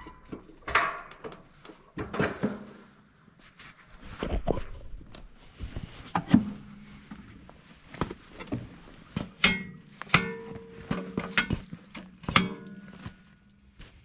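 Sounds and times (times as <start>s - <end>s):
hard objects knocking and clanking: 9.2s - 13.1s.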